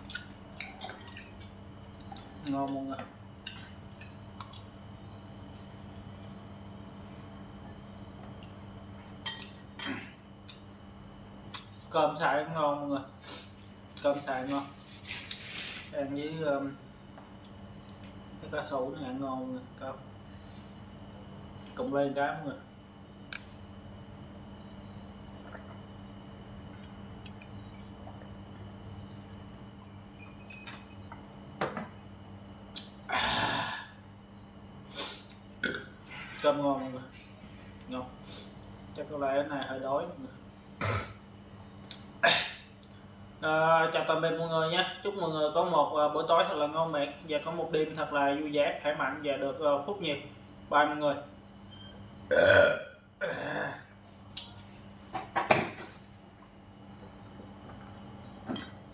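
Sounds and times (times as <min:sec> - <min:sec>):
glass set down on wooden table: 0:31.6 - 0:31.9
man exhaling: 0:33.1 - 0:34.0.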